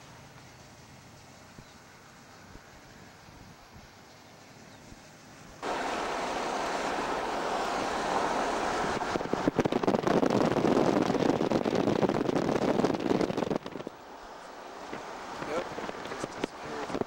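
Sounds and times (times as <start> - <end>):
wind buffeting the microphone: 5.6 - 14.0, 14.8 - 17.0.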